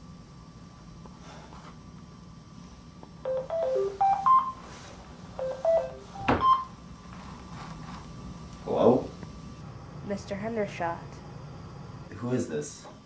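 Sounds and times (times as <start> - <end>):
phone ringtone beeping melody: 3.3 - 4.6, 5.4 - 6.7.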